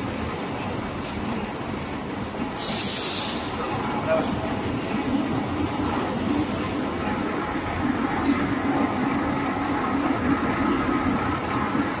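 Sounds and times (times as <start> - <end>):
high-pitched machine whine: 0.0 - 12.0.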